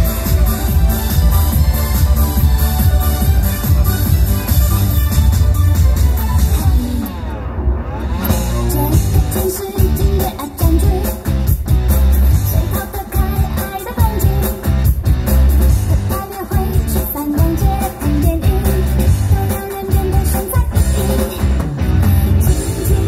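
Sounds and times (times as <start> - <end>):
heavy bass beat: 0.0 - 6.8, 8.3 - 23.0
pop dance song with singing: 8.6 - 11.4, 12.3 - 14.8, 15.9 - 21.6, 22.4 - 23.0.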